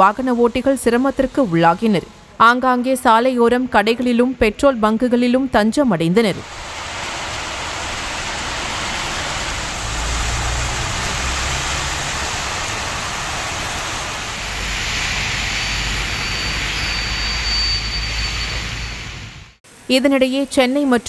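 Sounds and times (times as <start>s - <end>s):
traffic rumble on wet road: 6.4s - 19.4s
heavy rain hissing: 6.4s - 21.0s.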